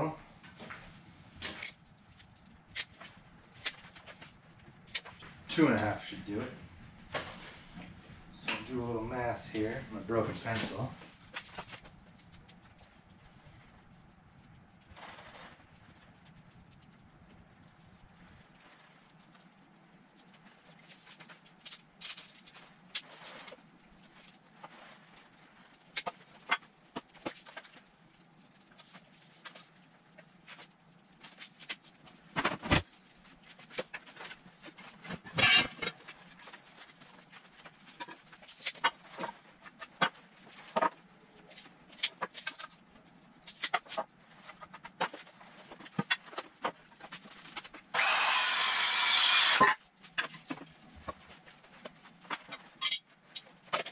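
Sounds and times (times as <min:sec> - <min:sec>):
loud power tool running: 0:47.9 - 0:49.8.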